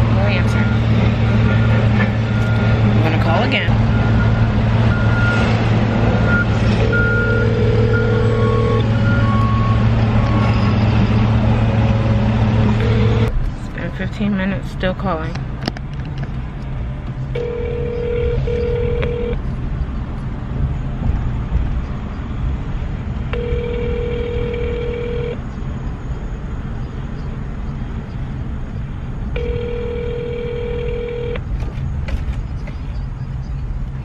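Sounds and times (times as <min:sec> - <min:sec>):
steady low rumble: 0:00.0 - 0:34.0
telephone ringback tone: 0:06.3 - 0:09.7, 0:12.8 - 0:13.3, 0:17.4 - 0:19.4, 0:23.4 - 0:25.4, 0:29.4 - 0:31.4.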